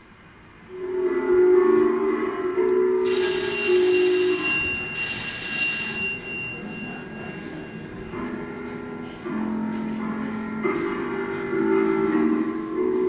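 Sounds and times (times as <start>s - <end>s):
quiet background music: 0.0s - 13.0s
electric bell ringing: 3.0s - 9.2s.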